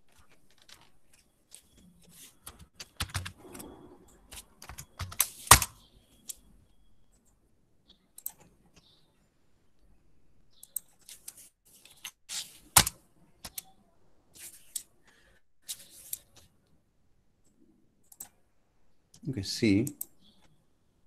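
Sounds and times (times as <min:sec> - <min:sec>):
computer keyboard clicking: 0:02.5 - 0:03.6, 0:04.3 - 0:05.7.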